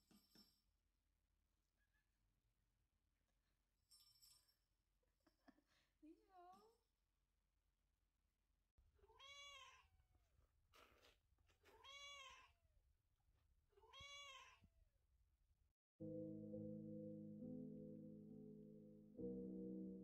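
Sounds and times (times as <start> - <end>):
kitten meowing: 9.0 - 9.9, 11.8 - 12.5, 13.8 - 14.6
music: 16.0 - 20.0.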